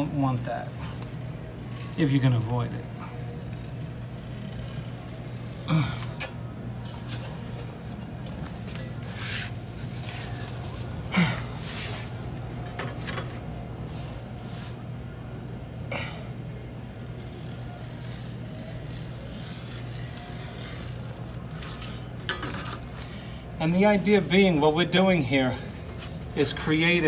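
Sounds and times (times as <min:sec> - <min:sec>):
steady low hum: 0:00.0 - 0:27.0
utility knife slicing vinyl: 0:17.0 - 0:23.0.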